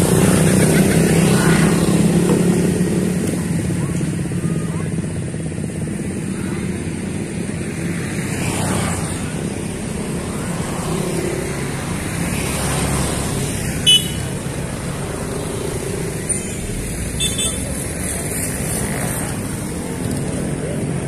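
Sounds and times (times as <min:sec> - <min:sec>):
cars driving past: 0:00.0 - 0:21.0
scooter engine running: 0:00.0 - 0:21.0.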